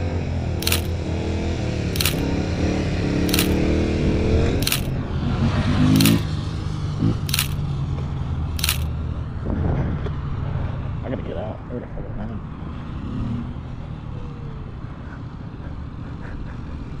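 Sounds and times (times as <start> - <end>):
camera shutter clicks: 0.6 - 1.0, 2.0 - 2.2, 3.3 - 3.6, 4.6 - 4.9, 6.0 - 6.2, 7.3 - 7.6, 8.6 - 8.9
motorcycle engine revving: 0.6 - 7.6.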